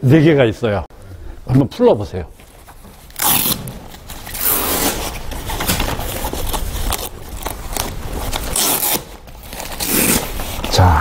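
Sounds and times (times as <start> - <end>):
velcro straps ripping open: 3.1 - 10.7.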